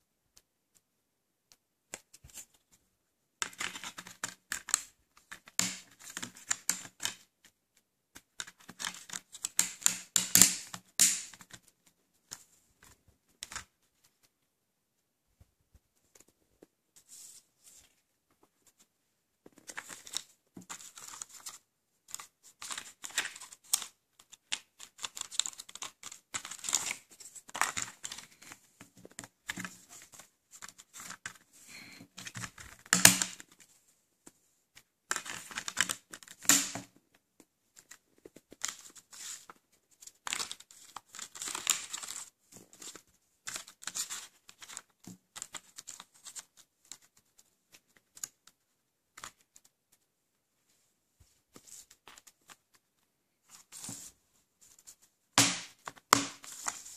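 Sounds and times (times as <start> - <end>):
paper rustling and crinkling: 17.0 - 33.8, 37.7 - 48.6, 50.7 - 55.1, 55.8 - 56.9.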